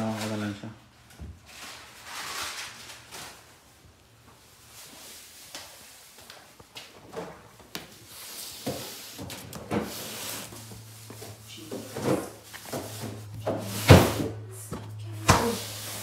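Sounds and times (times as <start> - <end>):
cardboard box scraping on tile: 1.5 - 3.4, 8.1 - 11.4.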